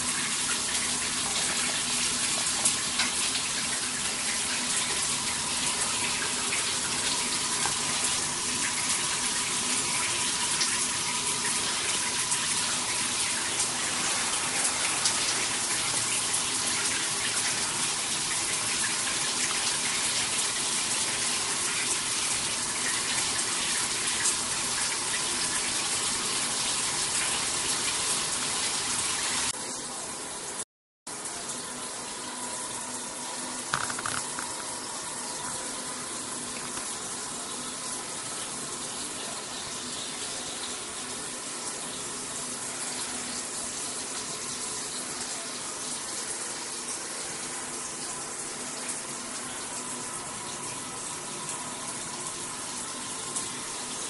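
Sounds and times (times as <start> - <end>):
water heater burner hissing: 0.0 - 29.6.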